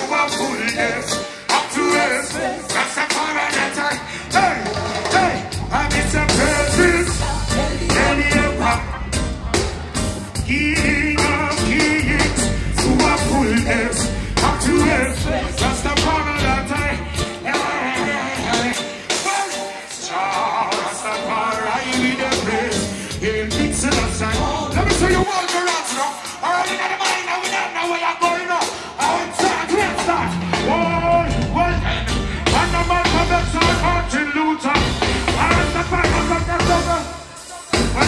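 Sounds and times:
man singing: 0:00.0 - 0:09.4, 0:10.3 - 0:38.0
live reggae band: 0:00.0 - 0:38.0.

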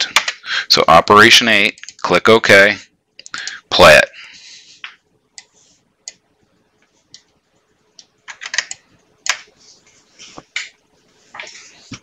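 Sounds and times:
faint steady hum: 0:00.0 - 0:12.0
keyboard and mouse clicks: 0:07.9 - 0:09.5.

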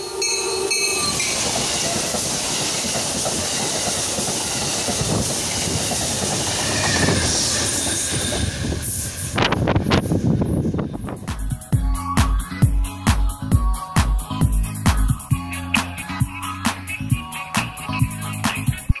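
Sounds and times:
train wheels rumbling on rails: 0:00.0 - 0:18.8
locomotive passing: 0:00.0 - 0:19.0.

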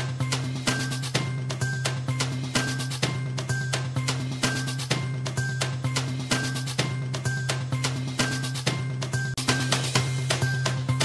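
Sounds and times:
steady drum beat: 0:00.0 - 0:11.0.

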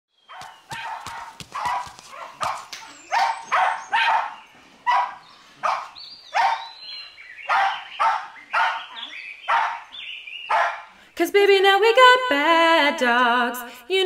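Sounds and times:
dog barking: 0:00.3 - 0:06.8, 0:07.4 - 0:09.9, 0:10.5 - 0:10.9.

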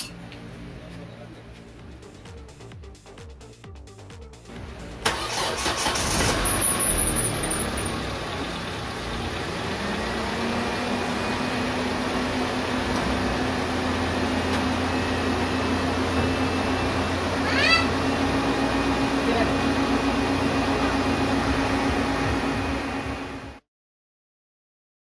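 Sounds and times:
car engine starting and idling: 0:00.5 - 0:23.6.

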